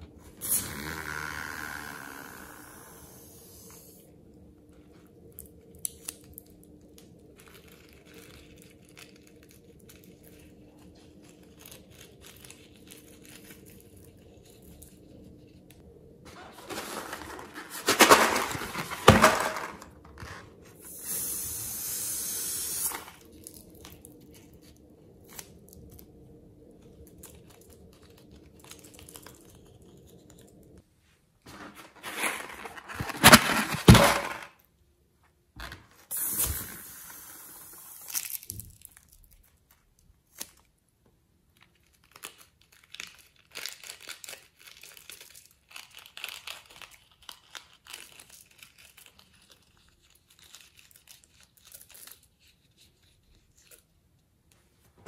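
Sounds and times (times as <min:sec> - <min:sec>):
rubber balloons crinkling and squeaking: 0:00.0 - 0:04.0, 0:16.2 - 0:25.9, 0:31.5 - 0:34.5
steady hiss of air: 0:02.2 - 0:04.1, 0:20.8 - 0:23.2.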